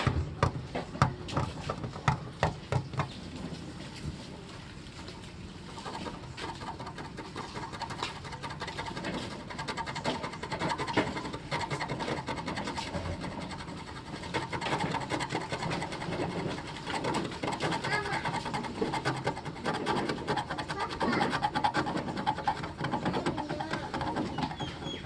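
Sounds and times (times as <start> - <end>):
tool scraping car paint: 5.7 - 25.0.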